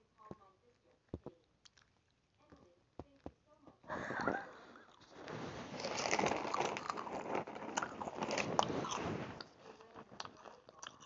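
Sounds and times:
crackers crunching while chewed: 1.2s - 2.4s, 4.8s - 11.0s.

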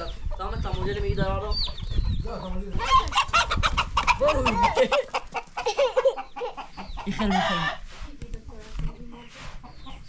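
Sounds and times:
chicken squawking and clucking: 2.0s - 8.0s.

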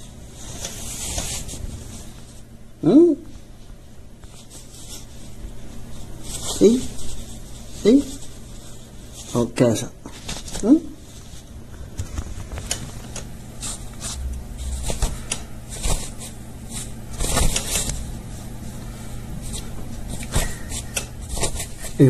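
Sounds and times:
low steady hum: 0.0s - 22.0s
cloth rustling: 10.2s - 18.8s.

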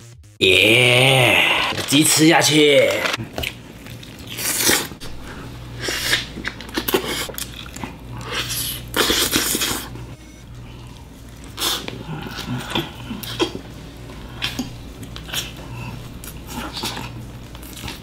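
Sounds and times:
low steady hum: 0.5s - 18.0s
man chewing and smacking: 3.2s - 10.0s, 10.8s - 18.0s.

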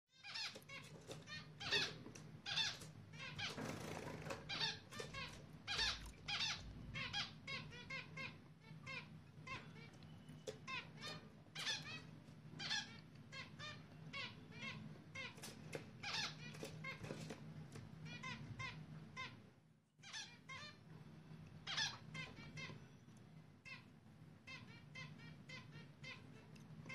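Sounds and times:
chicks chirping: 0.2s - 17.4s, 21.6s - 23.1s.

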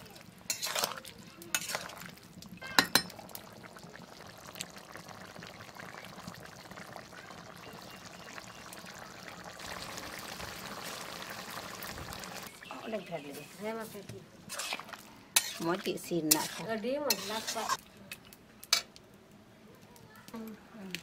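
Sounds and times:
curry simmering with bubbling hiss: 0.0s - 21.0s
metal ladle clinking against pan: 2.6s - 3.1s.

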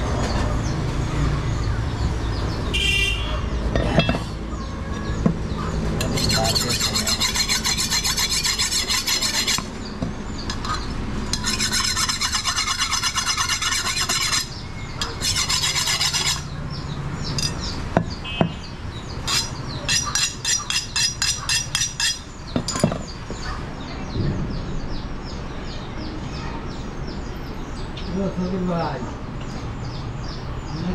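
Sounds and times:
blade sharpening strokes: 6.0s - 9.8s, 10.6s - 16.5s, 19.2s - 22.3s.

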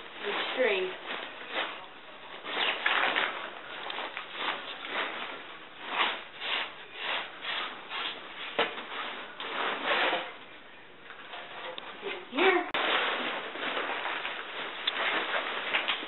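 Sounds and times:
tent fabric rustling: 0.0s - 10.4s, 12.1s - 16.0s.

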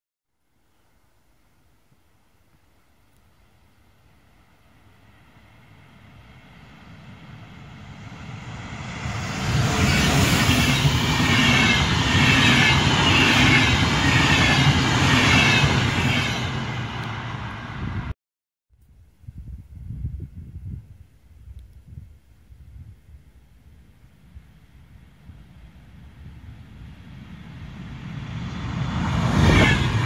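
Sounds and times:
electric train passing: 3.8s - 18.1s, 24.7s - 30.0s.

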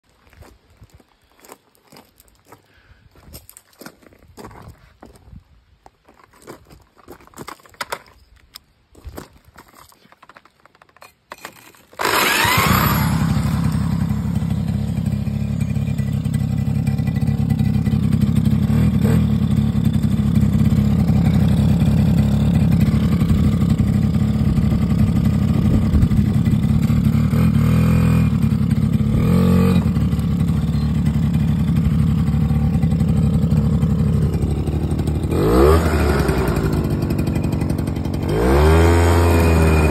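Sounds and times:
small two-stroke engine running: 12.0s - 39.9s.

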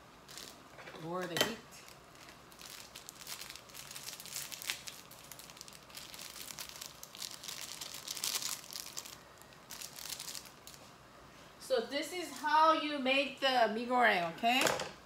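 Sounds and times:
plastic sachets crinkling: 0.2s - 0.7s, 1.8s - 10.9s.

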